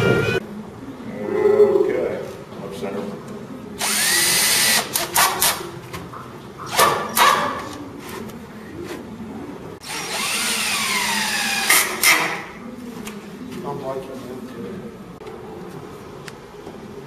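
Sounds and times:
power drill whining: 3.8s - 4.9s, 9.8s - 11.9s.

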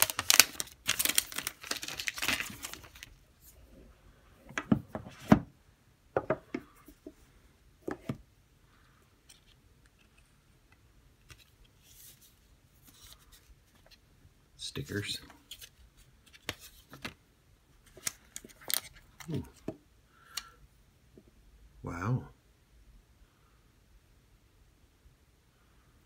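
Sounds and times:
paper rustling: 0.0s - 3.2s
plastic wrap crinkling and tearing: 0.0s - 3.2s.

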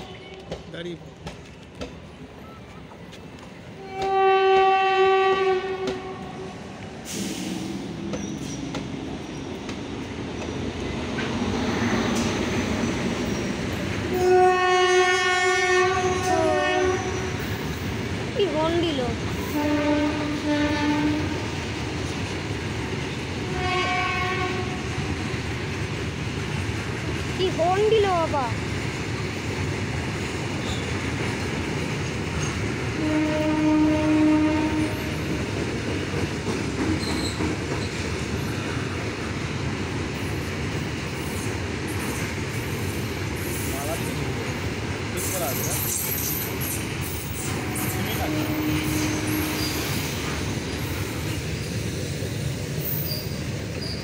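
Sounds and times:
train rumble: 0.0s - 54.0s
locomotive horn blast: 3.8s - 6.5s, 14.1s - 17.4s, 19.5s - 21.4s, 23.4s - 25.0s, 33.0s - 35.1s, 47.5s - 50.0s.

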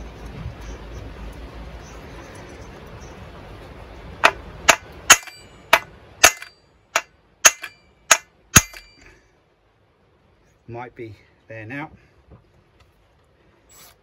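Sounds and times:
hammer striking metal: 4.2s - 9.1s.

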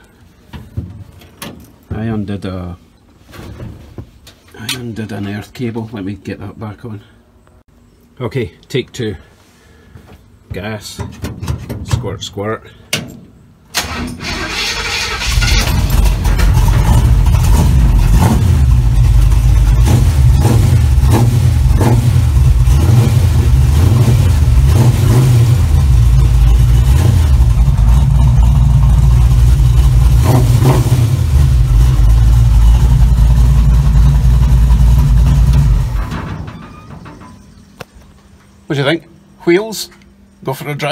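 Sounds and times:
engine starter cranking: 13.7s - 19.9s
engine running loudly: 15.8s - 36.1s.

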